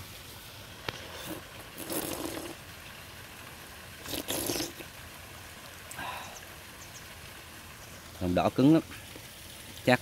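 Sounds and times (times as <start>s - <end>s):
faint steady hiss: 0.0s - 10.0s
person slurping egg: 1.0s - 2.6s, 4.0s - 4.9s.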